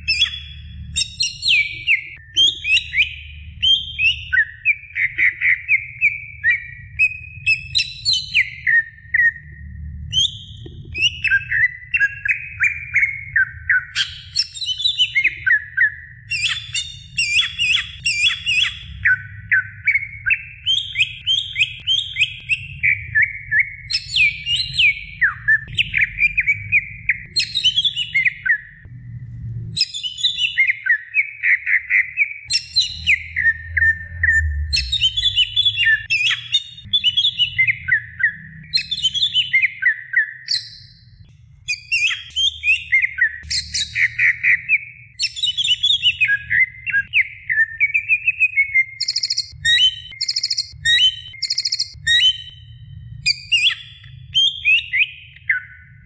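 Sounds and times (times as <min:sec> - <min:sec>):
bird singing: 0:00.0 - 0:28.9, 0:29.8 - 0:56.0
low background rumble: 0:08.4 - 0:11.8, 0:21.2 - 0:30.6, 0:52.0 - 0:54.3.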